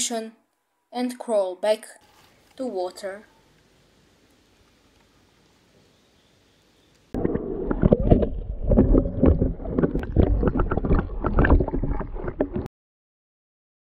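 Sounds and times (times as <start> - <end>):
water sloshing and bubbling: 7.2 - 12.7.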